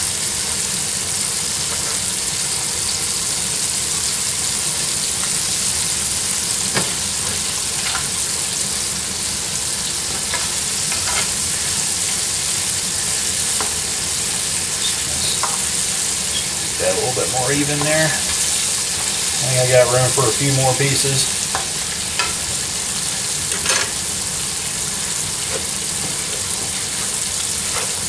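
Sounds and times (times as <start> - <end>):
meat frying in a skillet: 0.0 - 28.0.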